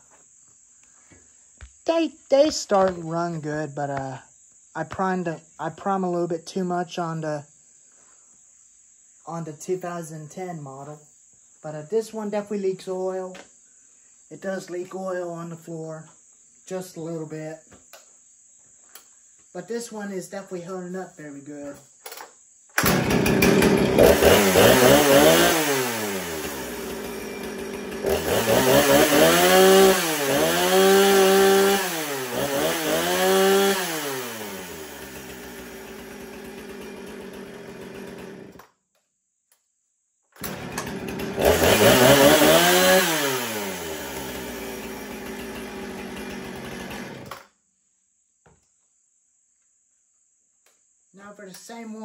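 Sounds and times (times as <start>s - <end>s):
chainsaw revving and idling: 22.8s - 38.7s, 40.4s - 47.5s.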